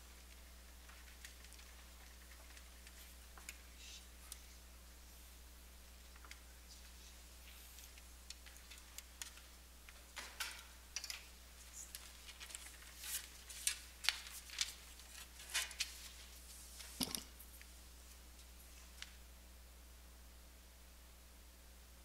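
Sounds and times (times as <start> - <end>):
low room hum: 0.0 - 22.0
clicks and rustles of plates: 10.1 - 11.3, 16.8 - 17.4.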